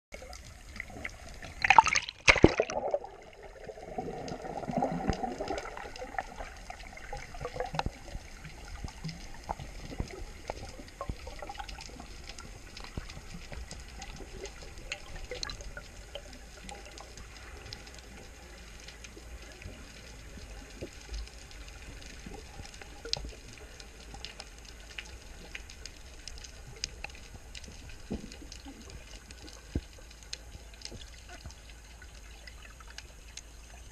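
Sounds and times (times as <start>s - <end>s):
faint clicks and crackles: 0.1s - 33.9s
muffled underwater wash: 0.1s - 33.9s
low bubbling rumble: 0.2s - 18.1s.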